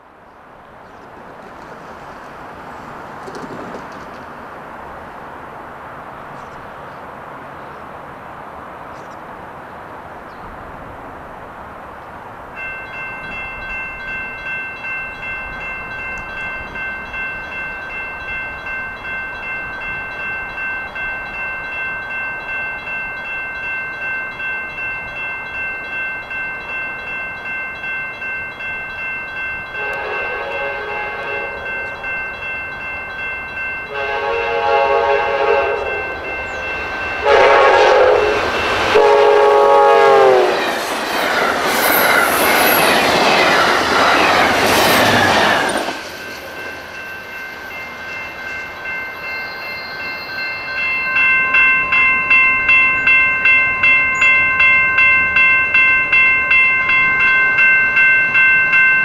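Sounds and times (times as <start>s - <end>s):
railroad crossing bell ringing: 12.4s - 59.0s
train horn blasts: 29.8s - 32.0s, 33.9s - 40.7s.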